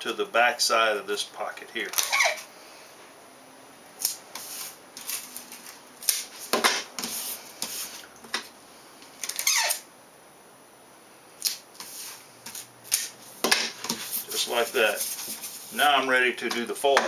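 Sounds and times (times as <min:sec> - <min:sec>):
tape ripping off dispenser: 0:01.9 - 0:02.5, 0:04.0 - 0:07.4, 0:09.2 - 0:09.9, 0:11.4 - 0:14.4.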